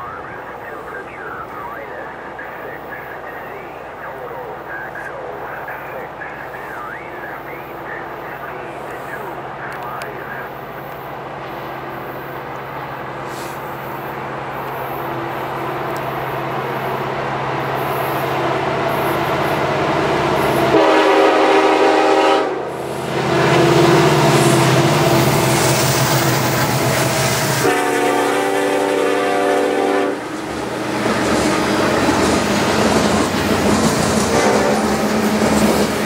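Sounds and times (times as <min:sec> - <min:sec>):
freight train passing: 0:00.0 - 0:36.0
locomotive air horn blast: 0:20.6 - 0:24.7, 0:27.1 - 0:30.3, 0:34.3 - 0:35.0.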